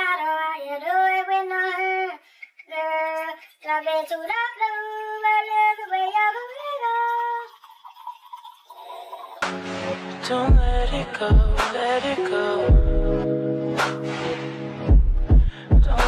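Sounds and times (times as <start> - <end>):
woman singing unaccompanied: 0.0 - 7.6.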